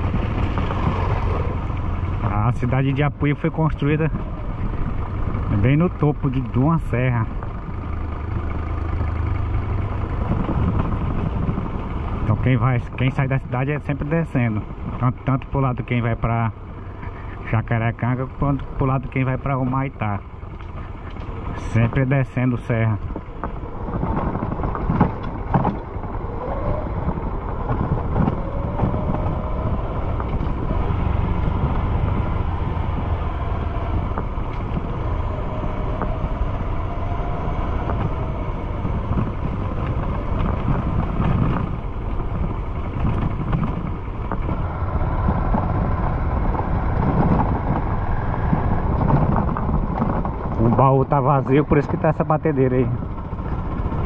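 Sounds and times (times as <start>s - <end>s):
wind noise on microphone: 0.0s - 5.8s, 9.5s - 15.2s, 22.8s - 54.0s
motorcycle engine running: 0.0s - 54.0s.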